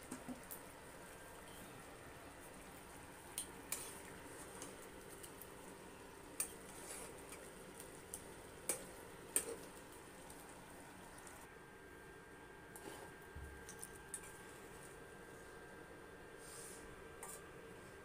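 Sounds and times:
metal spoon scraping nonstick pan: 3.7s - 4.8s, 17.2s - 17.5s.

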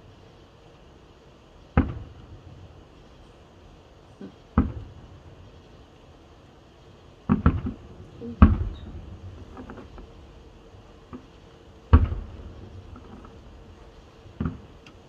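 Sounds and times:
distant firework shells bursting: 1.7s - 2.3s, 4.2s - 5.3s, 7.2s - 15.0s
faint firework pops: 1.8s - 2.3s, 4.2s - 5.0s, 7.3s - 7.8s, 8.4s - 10.2s, 11.1s - 13.4s, 14.4s - 15.0s.

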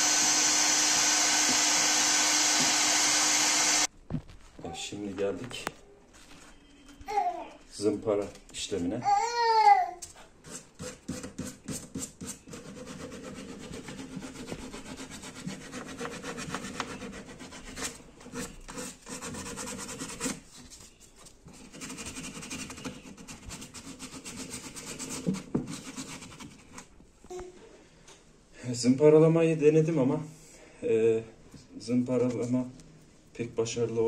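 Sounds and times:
sanding sponge rubbing plastic: 10.4s - 20.5s, 21.5s - 26.8s.

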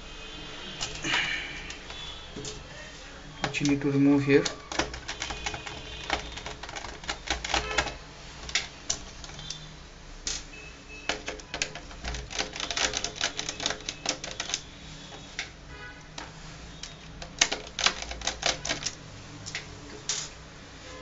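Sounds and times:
clicking and tapping on laptop case: 4.4s - 9.6s, 11.1s - 15.5s, 16.1s - 20.3s.

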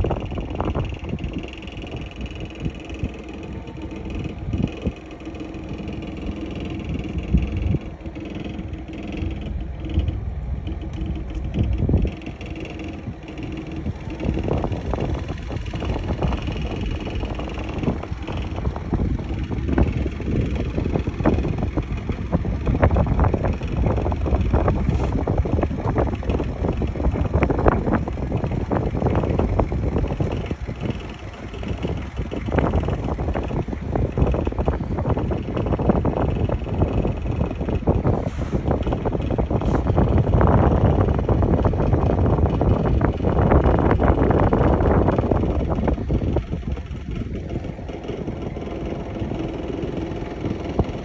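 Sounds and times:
wind buffeting microphone: 0.0s - 51.0s.

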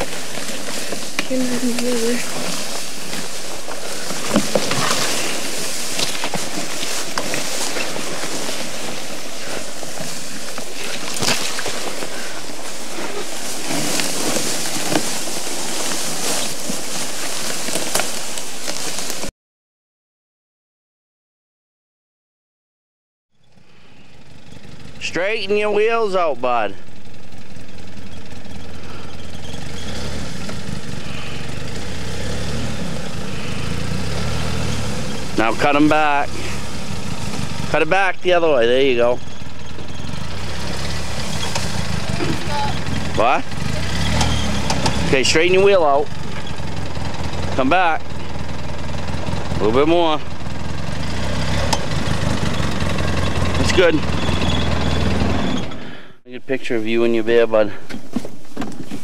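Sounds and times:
sharp snaps of stalks: 0.0s - 12.6s, 13.3s - 19.3s, 51.4s - 52.0s
sled dragged through undergrowth: 0.0s - 19.3s, 23.4s - 59.0s
vehicle engine at low revs: 0.0s - 19.3s, 23.3s - 59.0s.

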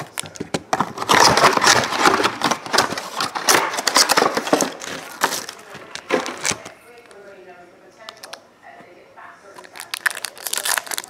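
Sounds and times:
plastic wrap and cardboard crackling: 0.0s - 7.2s, 9.5s - 11.0s.

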